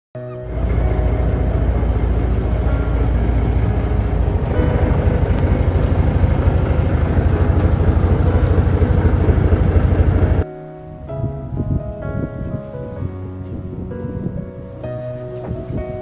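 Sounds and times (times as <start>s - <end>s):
outboard motor running: 0.4s - 10.4s
wind buffeting microphone: 0.4s - 16.0s.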